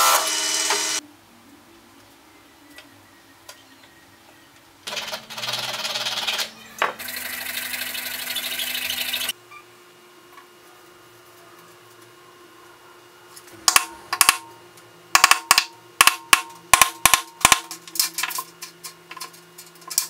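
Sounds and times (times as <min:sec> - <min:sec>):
cordless drill motor running: 0:05.5 - 0:09.3.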